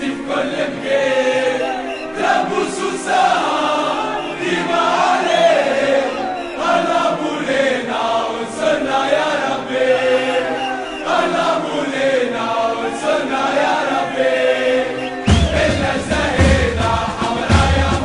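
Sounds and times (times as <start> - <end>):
men chanting in unison: 0.0 - 18.0
deep drum beat: 15.3 - 18.0.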